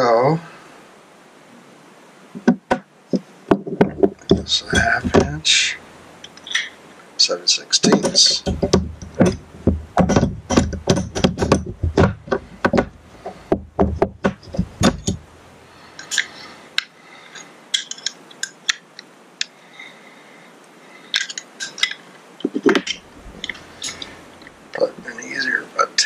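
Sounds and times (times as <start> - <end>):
metal hand tools clinking: 16.0 - 16.4, 17.3 - 18.8, 21.1 - 22.1, 22.8 - 24.2.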